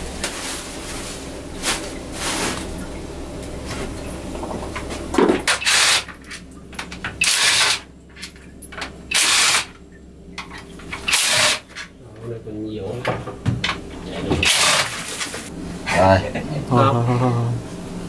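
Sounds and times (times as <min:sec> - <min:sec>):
cordless drill motor bursts: 0:05.6 - 0:06.1, 0:07.2 - 0:07.9, 0:09.1 - 0:09.7, 0:11.1 - 0:11.6.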